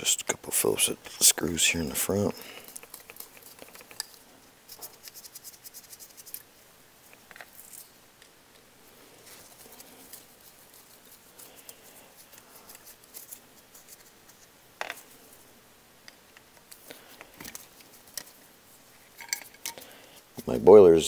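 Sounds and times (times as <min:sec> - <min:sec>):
metal parts handled: 0:19.0 - 0:19.9.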